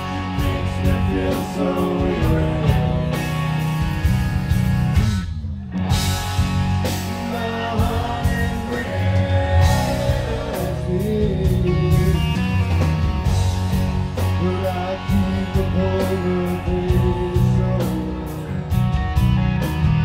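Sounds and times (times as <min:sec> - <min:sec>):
male lead vocal: 0:00.0 - 0:03.8, 0:06.9 - 0:12.6, 0:14.2 - 0:18.8
drums: 0:00.0 - 0:20.0
electric guitar: 0:00.0 - 0:20.0.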